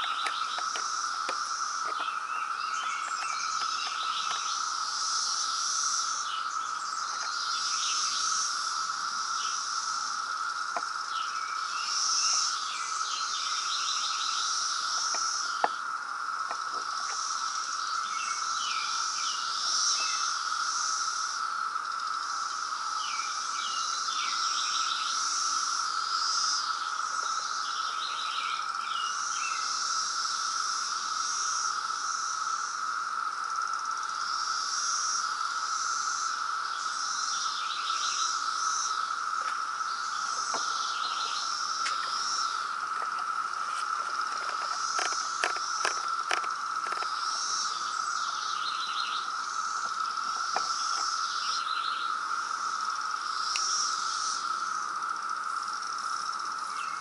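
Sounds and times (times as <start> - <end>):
birds chirping: 0.0 - 8.4, 36.7 - 52.2
cicadas droning: 0.0 - 57.0.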